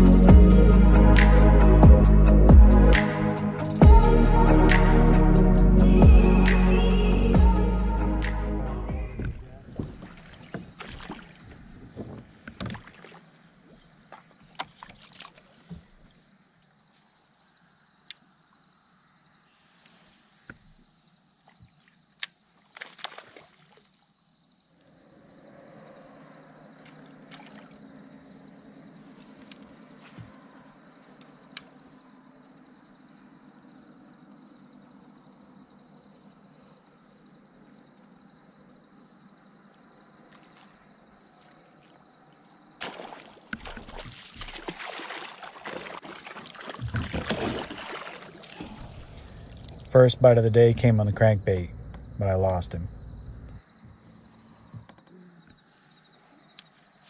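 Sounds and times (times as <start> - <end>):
water sloshing against hull: 9.1 - 16.2, 26.7 - 28.2, 42.8 - 49.9.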